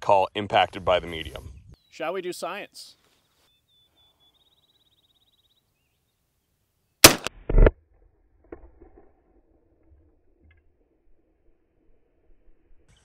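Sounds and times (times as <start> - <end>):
shotgun blast: 7.0 - 7.7.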